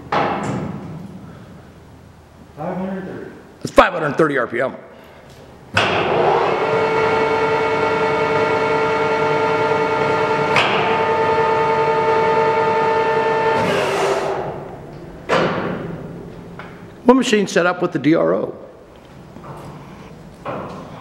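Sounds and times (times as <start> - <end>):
lathe gear whine: 5.9 - 14.5.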